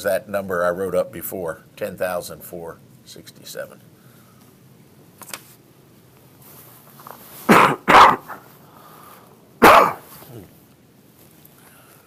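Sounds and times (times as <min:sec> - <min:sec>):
man coughing: 0:07.5 - 0:08.4, 0:09.6 - 0:10.6.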